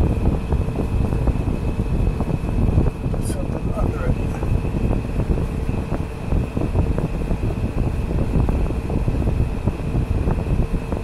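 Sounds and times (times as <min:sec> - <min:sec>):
air buffeting microphone: 0:00.0 - 0:11.0
air conditioner fan hum: 0:00.0 - 0:11.0.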